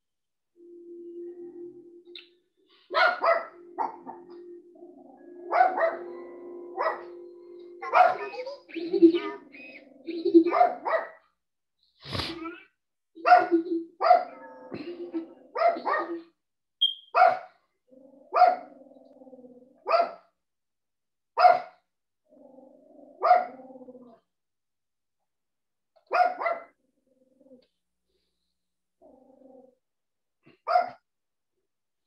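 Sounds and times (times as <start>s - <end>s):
dog barking: 2.9s - 4.3s, 5.4s - 6.1s, 6.8s - 7.2s, 7.8s - 8.4s, 10.4s - 11.2s, 13.2s - 14.5s, 15.5s - 16.3s, 17.1s - 17.6s, 18.3s - 18.7s, 19.8s - 20.2s, 21.4s - 21.8s, 23.2s - 23.6s, 26.1s - 26.8s, 30.6s - 31.0s.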